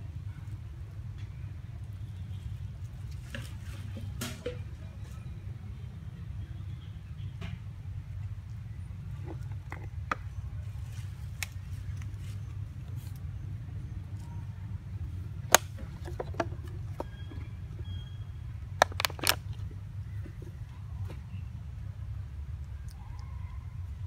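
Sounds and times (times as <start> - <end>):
plastic bottle crinkling: 15.5 - 17.8, 18.8 - 19.7.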